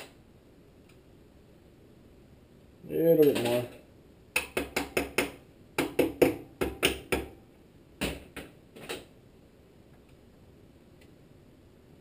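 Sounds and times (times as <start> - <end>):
hammer tapping on metal: 4.4 - 7.4.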